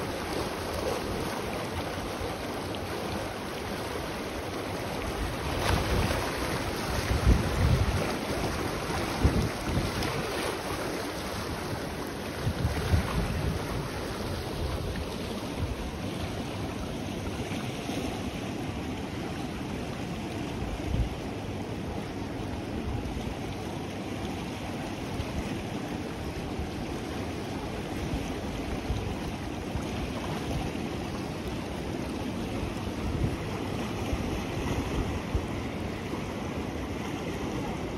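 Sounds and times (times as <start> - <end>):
river water rushing: 0.0 - 37.9
wind buffeting microphone: 5.2 - 16.0.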